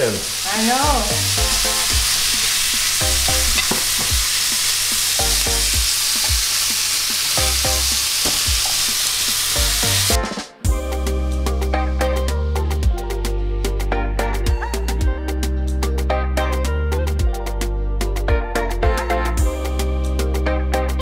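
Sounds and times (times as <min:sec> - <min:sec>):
vegetables sizzling in hot oil: 0:00.0 - 0:10.2
music with a beat: 0:04.9 - 0:21.0.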